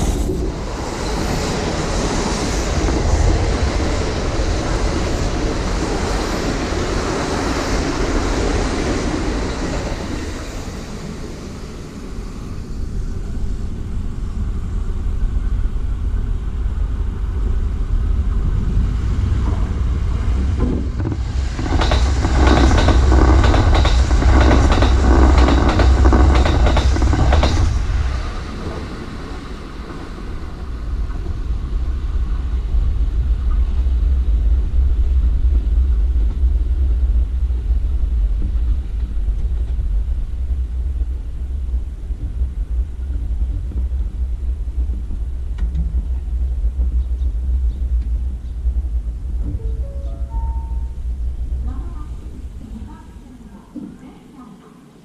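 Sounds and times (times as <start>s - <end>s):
train rumbling: 0.0s - 55.0s
train wheels clattering on rails: 18.2s - 50.4s.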